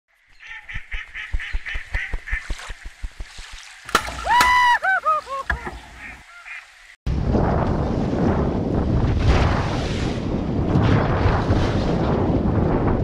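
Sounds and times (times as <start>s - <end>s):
duck quacking: 5.3s - 6.6s.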